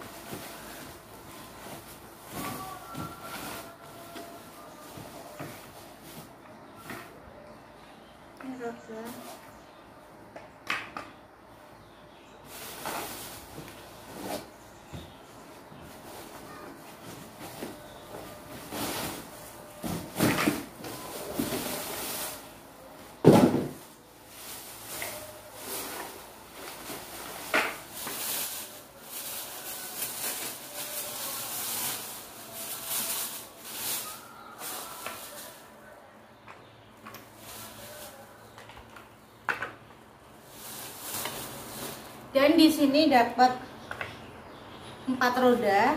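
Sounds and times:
plastic wrapping rustling: 0.0 - 7.2, 12.4 - 36.0, 37.0 - 39.1, 40.3 - 42.9.

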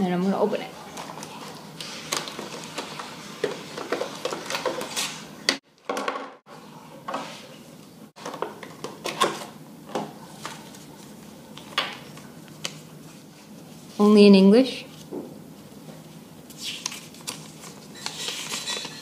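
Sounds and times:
plastic packaging crackling: 1.0 - 5.3.

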